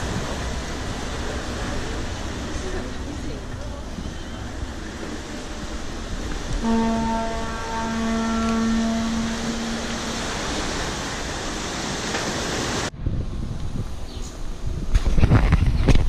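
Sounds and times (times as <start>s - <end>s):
surf: 0.0s - 13.0s
wind: 0.0s - 16.0s
single-pitched horn: 6.6s - 10.7s.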